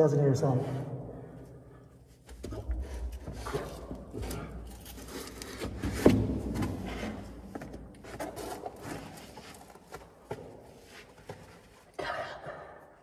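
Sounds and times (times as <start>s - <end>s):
scuffing and knocking on a ladder: 5.5s - 11.8s.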